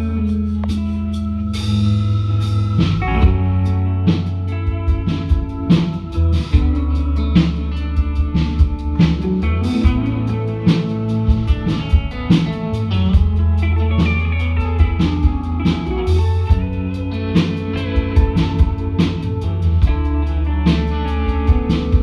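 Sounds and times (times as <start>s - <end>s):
drum kit steady beat: 0.0s - 22.0s
electric guitars: 0.0s - 22.0s.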